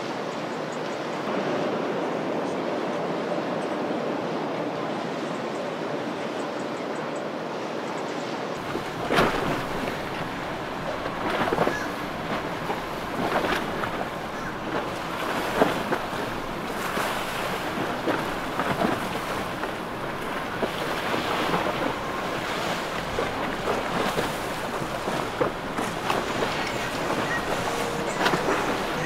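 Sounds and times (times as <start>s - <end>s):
water splashing and churning: 0.0s - 29.0s
wind buffeting microphone: 8.6s - 29.0s.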